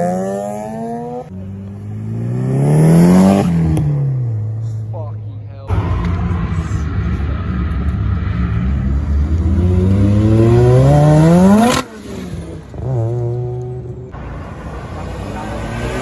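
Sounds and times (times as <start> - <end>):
rotary engine accelerating: 5.7 - 12.0.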